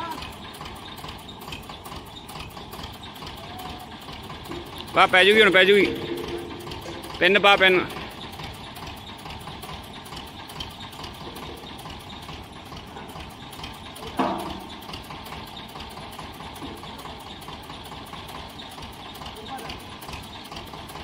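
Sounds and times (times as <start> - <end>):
man shouting: 0.0 - 0.3, 3.4 - 4.0
engine idling: 0.0 - 21.0.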